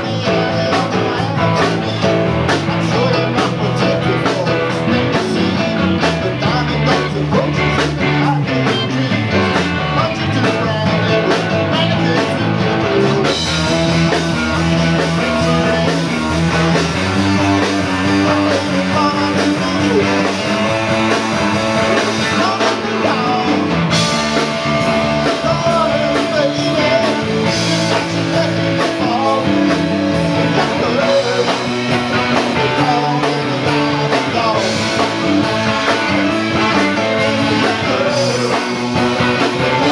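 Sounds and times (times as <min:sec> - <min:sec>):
man singing into a microphone: 0:00.0 - 0:13.4, 0:14.0 - 0:21.2, 0:21.9 - 0:24.0, 0:25.0 - 0:39.9
live rock band playing: 0:00.0 - 0:39.9.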